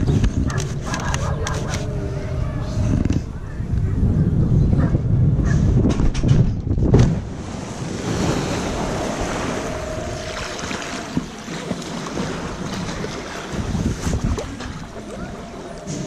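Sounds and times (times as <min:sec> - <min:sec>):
wind buffeting microphone: 0:00.0 - 0:16.0
loud low rumble: 0:01.3 - 0:06.9
water rushing and churning: 0:07.2 - 0:16.0.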